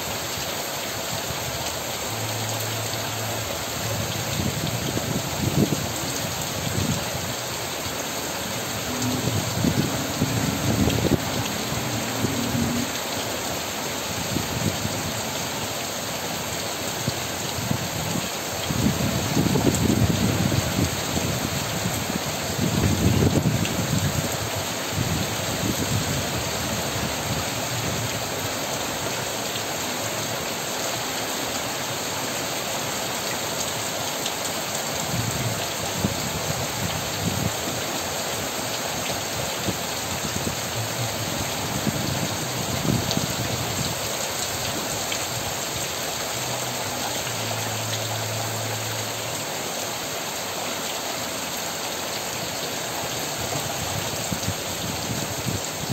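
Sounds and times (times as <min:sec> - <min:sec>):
heavy rain falling: 0:00.0 - 0:55.9
low rumble: 0:08.5 - 0:13.0.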